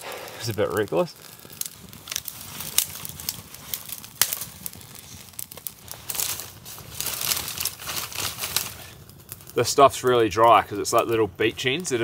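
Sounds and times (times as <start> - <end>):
burning wood cracking: 0.0 - 12.0
twigs rustling and snapping: 0.2 - 9.6.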